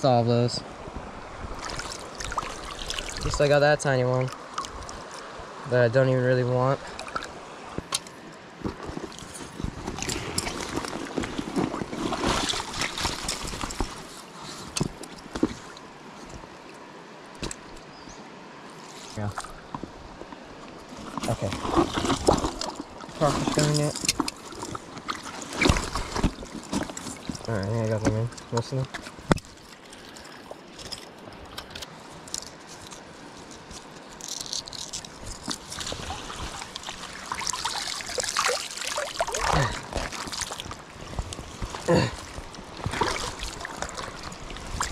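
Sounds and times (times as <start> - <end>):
creek water splashing: 0.6 - 17.9, 18.6 - 44.9
water splashing and dripping: 1.5 - 5.4, 6.8 - 8.1, 34.2 - 44.9.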